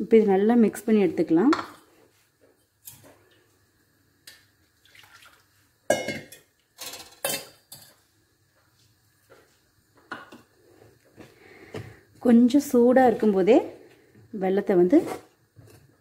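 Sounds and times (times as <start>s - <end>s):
kitchenware clinking on steel bowl: 5.9s - 8.0s.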